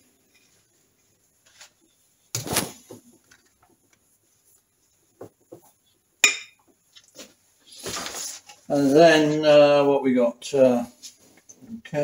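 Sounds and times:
scraping rustle: 7.0 - 9.6.

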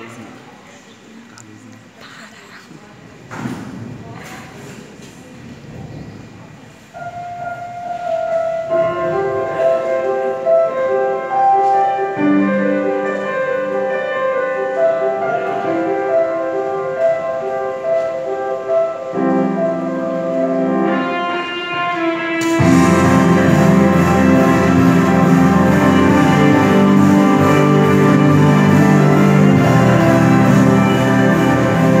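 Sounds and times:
instrumental music with held notes: 7.0 - 32.0.

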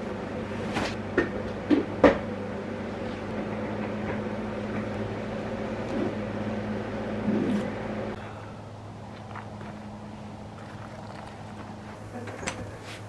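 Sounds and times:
low appliance hum: 0.0 - 13.0.

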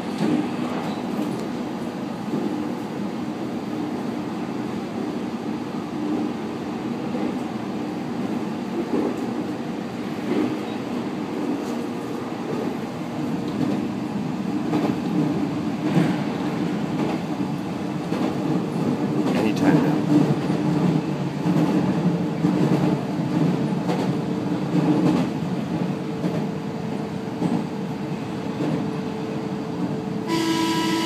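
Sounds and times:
train wheels rumbling on rail: 0.0 - 31.0.

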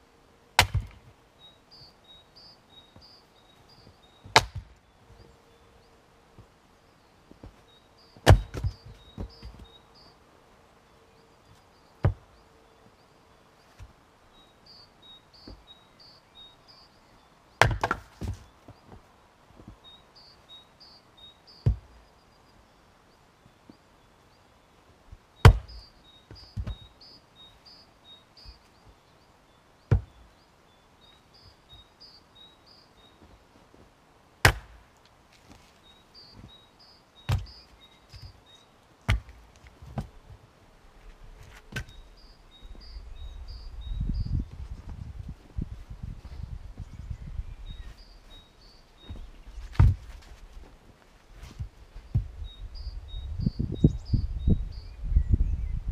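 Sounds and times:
axe chopping firewood: 0.6 - 1.1, 4.2 - 4.8, 8.2 - 9.6, 17.6 - 18.5, 21.6 - 21.9, 25.4 - 25.8, 29.9 - 30.2, 34.4 - 34.8, 37.3 - 38.3, 39.1 - 40.1, 49.7 - 50.1.

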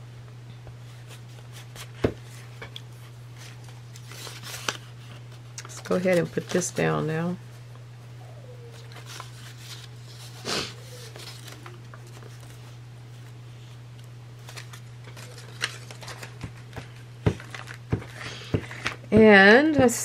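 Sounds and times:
steady low hum: 0.0 - 20.0
paper rustling: 0.8 - 7.0, 8.7 - 13.8, 14.4 - 19.0.

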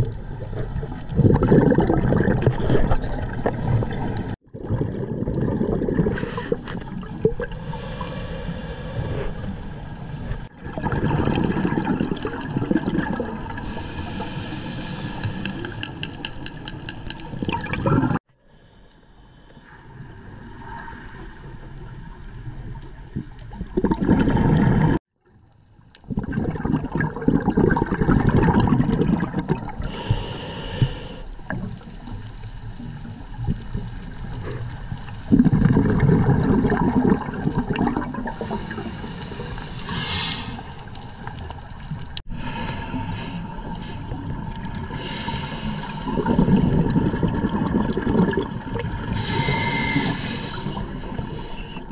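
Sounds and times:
underwater exhaled bubbles gurgling: 0.0 - 16.5, 17.2 - 18.2, 20.0 - 25.0, 25.8 - 51.9
steady water hiss: 3.3 - 4.4, 6.1 - 10.5, 13.2 - 17.6, 29.7 - 35.3, 38.2 - 51.9.

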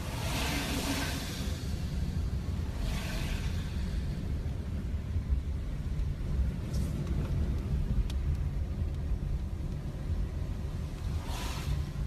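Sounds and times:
car cabin rumble: 0.0 - 12.0
faint tick: 6.7 - 9.9.

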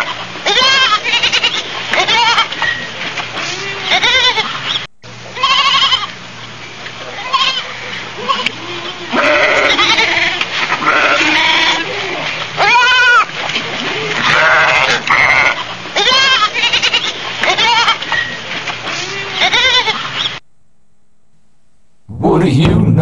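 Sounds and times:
sheep bleating: 0.0 - 2.5, 3.4 - 4.6, 5.3 - 6.2, 7.2 - 13.3, 14.1 - 18.1, 19.0 - 20.1.

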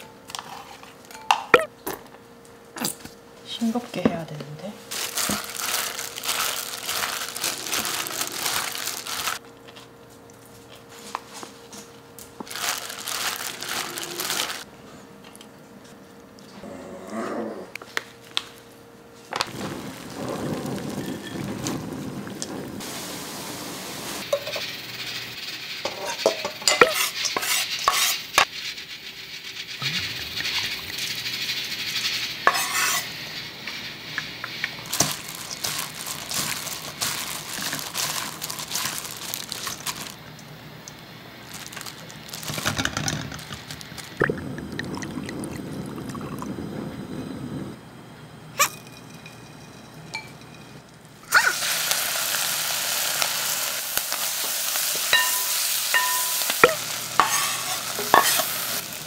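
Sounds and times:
plastic glove crinkling: 4.8 - 9.8, 10.6 - 14.7, 19.3 - 23.0, 33.8 - 40.4, 41.3 - 44.2
water bubbling in a pot: 19.5 - 23.2, 29.7 - 31.3, 44.2 - 47.8
utensils clinking on metal bowl: 25.8 - 28.3, 48.6 - 50.8, 55.0 - 58.6.

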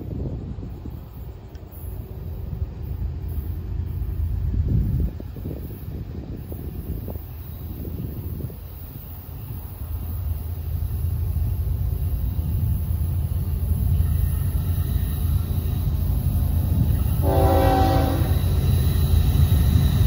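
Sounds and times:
freight train rumble: 0.0 - 20.0
locomotive air horn: 17.2 - 18.6.

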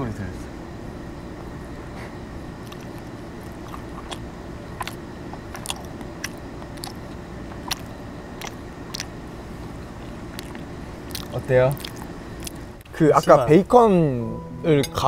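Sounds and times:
crunchy chewing: 2.0 - 13.0.

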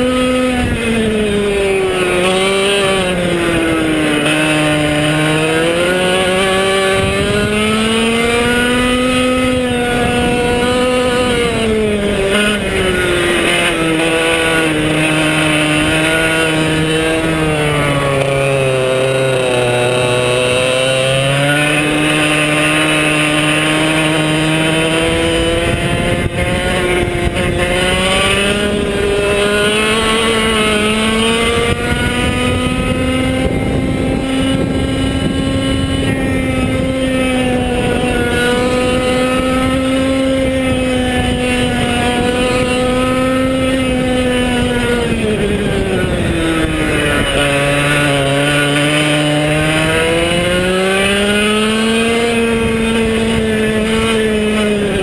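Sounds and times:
kart engine revving: 0.0 - 55.0.

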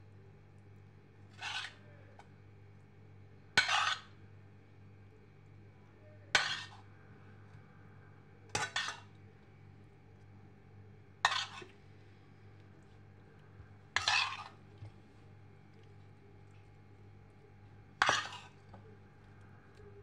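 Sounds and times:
metal spoon scraping a dish: 1.3 - 1.9, 3.6 - 4.2, 6.4 - 6.8, 8.5 - 9.2, 11.2 - 11.8, 14.0 - 15.0, 18.0 - 18.8.

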